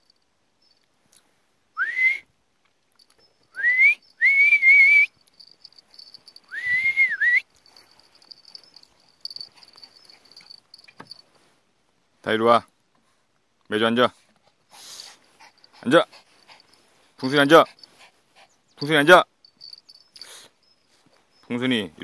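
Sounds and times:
person whistling: 1.8s - 2.3s, 3.5s - 5.2s, 6.0s - 7.5s.

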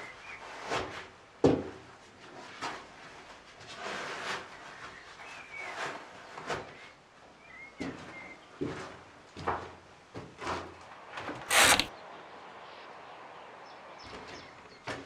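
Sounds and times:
clothing and leather rustling: 11.5s - 11.9s.

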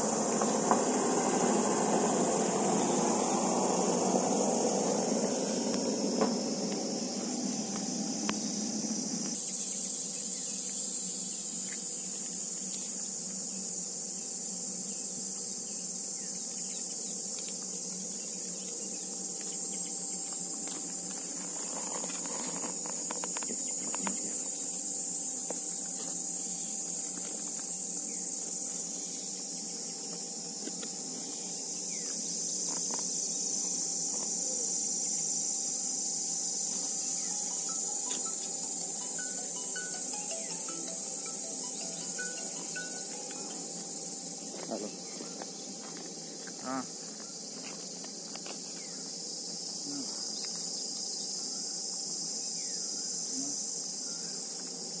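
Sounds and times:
insects shrilling: 0.0s - 55.0s.

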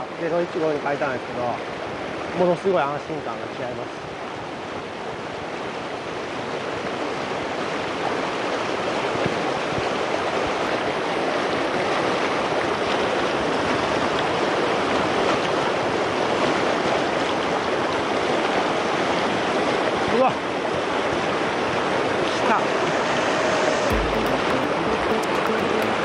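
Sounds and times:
river rapids rushing: 20.5s - 26.0s.

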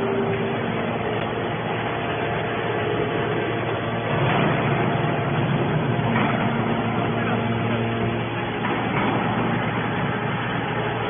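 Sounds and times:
hydraulic baler drone: 0.0s - 11.0s.

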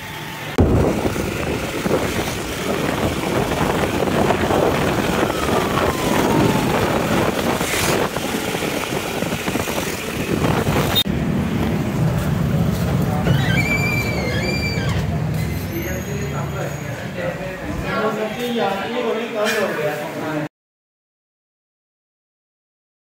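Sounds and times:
vehicle engine running: 0.0s - 13.3s
road noise: 0.0s - 20.5s
wind noise on microphone: 0.6s - 14.8s.

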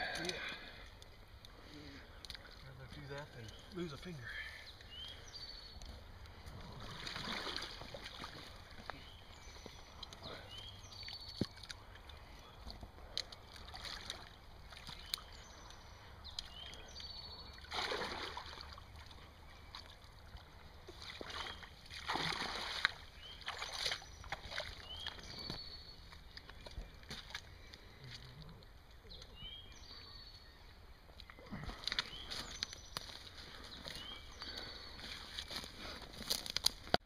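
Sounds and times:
sloshing through shallow water: 6.4s - 12.6s, 13.2s - 28.4s.

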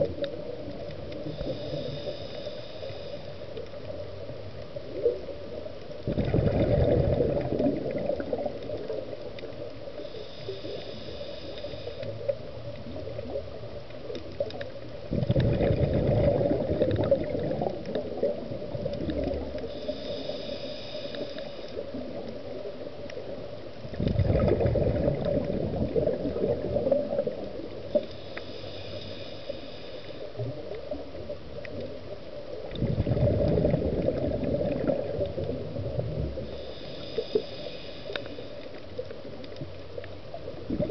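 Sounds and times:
regulator hissing inhale: 1.1s - 4.0s, 8.2s - 13.4s, 19.3s - 23.4s, 26.2s - 31.3s, 36.3s - 39.1s
exhaled bubbles underwater: 4.8s - 9.6s, 12.3s - 28.2s, 30.4s - 38.2s, 39.1s - 40.9s.

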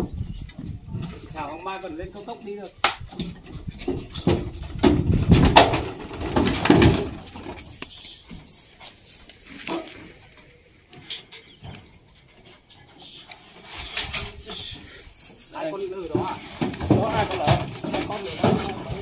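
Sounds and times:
hooves knocking on wooden ramp: 2.9s - 8.6s, 15.7s - 19.0s
shuffling: 3.6s - 19.0s.

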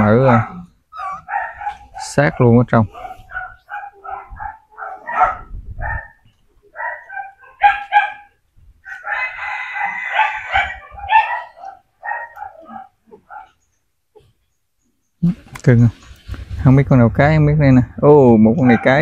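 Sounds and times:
puppies whining and squealing: 0.3s - 2.0s.

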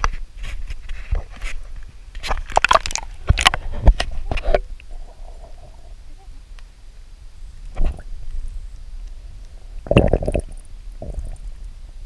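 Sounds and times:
water sloshing and splashing: 2.2s - 4.6s.

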